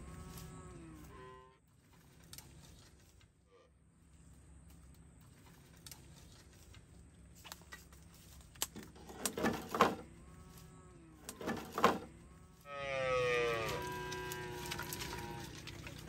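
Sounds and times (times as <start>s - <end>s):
cow mooing: 0.0s - 1.6s, 12.2s - 16.0s
dry sticks rustling and clacking: 1.8s - 3.3s, 4.7s - 10.6s, 11.2s - 12.1s.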